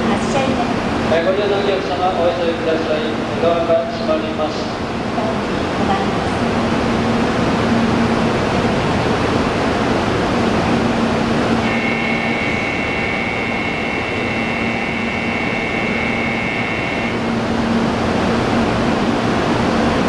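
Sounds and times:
train air-conditioning hum: 0.0s - 20.0s
high electronic warning tone: 11.6s - 17.5s.

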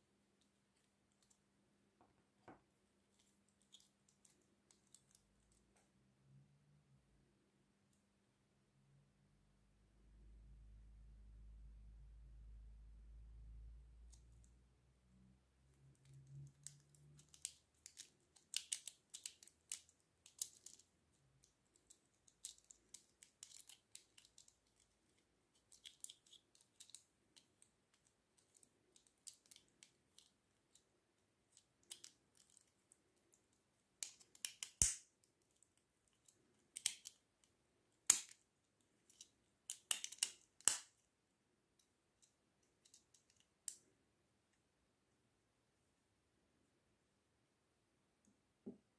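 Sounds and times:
plastic toy clicks and snaps: 16.6s - 20.8s, 34.0s - 35.1s, 36.7s - 37.2s, 38.1s - 38.4s, 39.1s - 40.9s.

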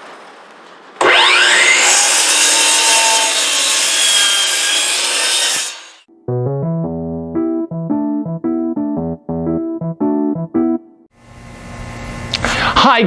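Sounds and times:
power saw cutting wood: 1.0s - 6.1s.

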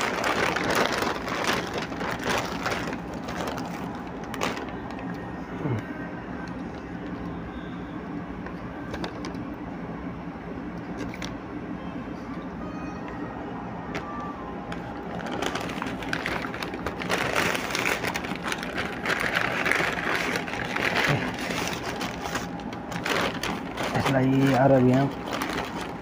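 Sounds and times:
plastic bag crinkling: 0.0s - 5.3s, 14.7s - 26.0s
steady low hum: 0.0s - 26.0s.

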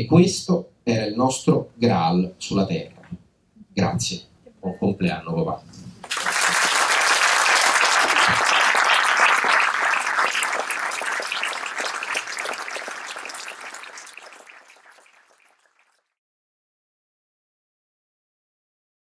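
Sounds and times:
audience applauding: 6.0s - 16.0s.

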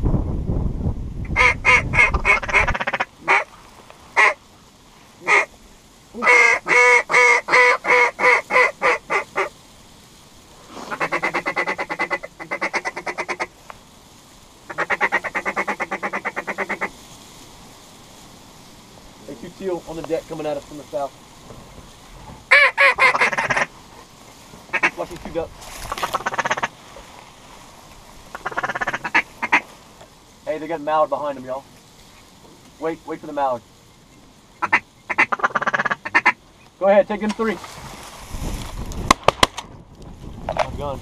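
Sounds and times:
wind rumble on microphone: 0.0s - 3.1s, 37.6s - 41.0s
duck call quacks: 1.3s - 3.5s, 4.2s - 4.4s, 5.2s - 5.5s, 6.2s - 9.5s, 10.9s - 13.5s, 14.7s - 16.9s, 22.5s - 23.7s, 24.7s - 25.1s, 25.9s - 26.8s, 28.3s - 29.6s, 34.6s - 36.4s
duck call rapid chattering: 1.3s - 3.5s, 4.2s - 4.4s, 5.2s - 5.5s, 6.2s - 9.5s, 10.9s - 13.5s, 14.7s - 16.9s, 22.5s - 23.7s, 24.7s - 25.1s, 25.9s - 26.7s, 28.3s - 29.6s, 34.6s - 36.4s.

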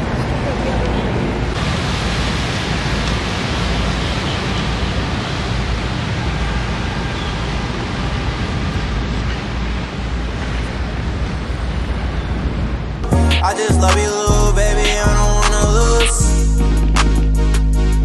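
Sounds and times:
water rushing past hull: 1.5s - 10.6s.

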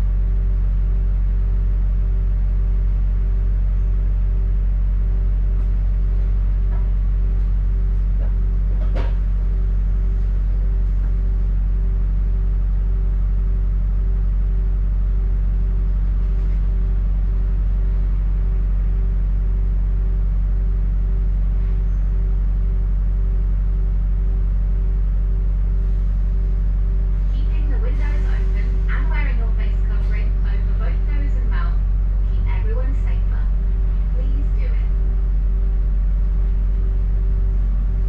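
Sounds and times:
faint pulsing tone: 9.3s - 38.0s
bus engine humming: 22.3s - 38.0s.

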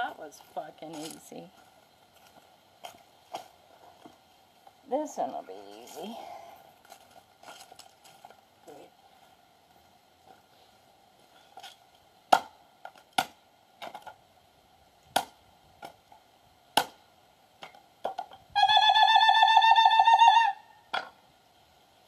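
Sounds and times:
high warbling whistle-like tone: 18.6s - 20.8s.

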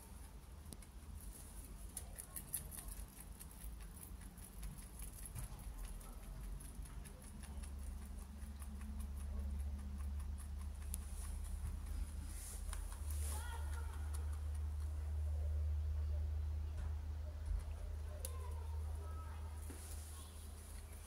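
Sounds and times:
rabbit chewing hay: 0.0s - 21.0s.

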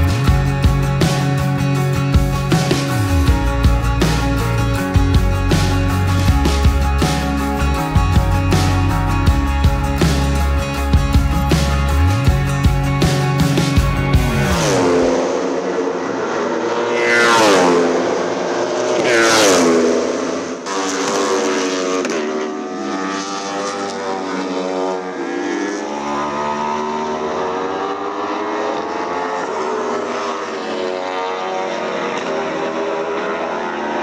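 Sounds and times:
race car passing at high revs: 13.2s - 34.0s.

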